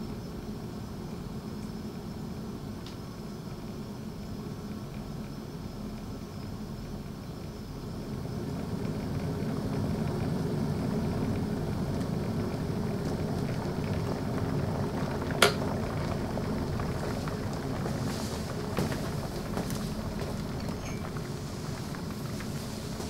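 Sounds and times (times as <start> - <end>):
electric kettle boiling: 0.0 - 23.0
kettle switch click: 15.4 - 15.6.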